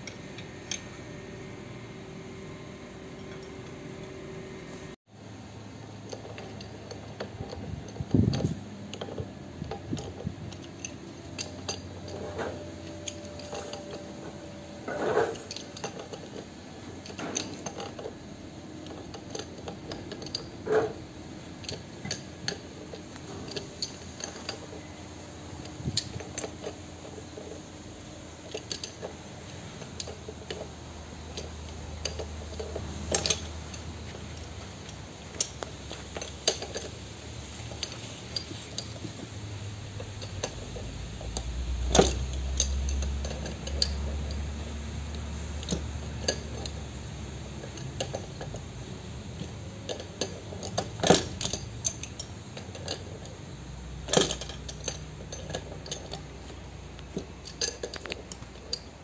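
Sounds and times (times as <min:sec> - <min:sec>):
wrench clinking on metal gears: 0:06.0 - 0:59.0.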